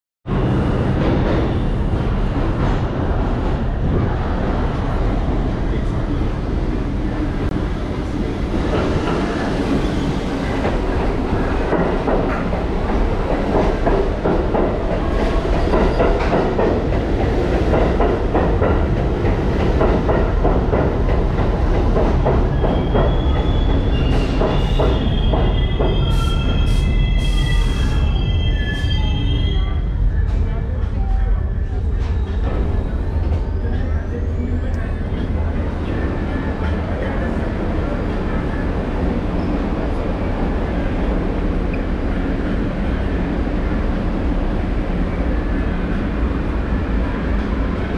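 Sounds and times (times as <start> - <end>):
train rumbling: 0.3 - 47.9
wheels and brakes squealing: 22.5 - 29.8.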